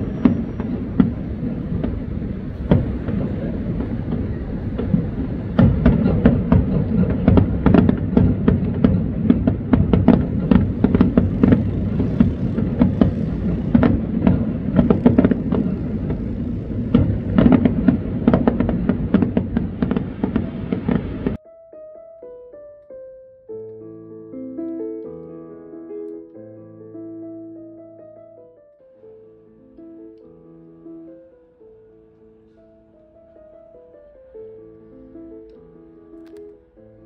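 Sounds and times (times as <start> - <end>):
low rumble: 0.0 - 8.5, 9.1 - 21.4
fireworks bangs and crackles: 0.0 - 21.4.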